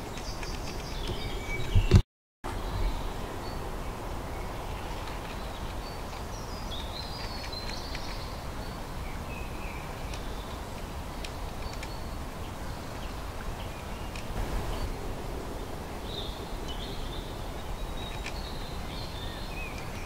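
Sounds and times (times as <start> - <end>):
faint clicks: 5.0 - 8.2, 10.1 - 12.0, 18.0 - 18.7.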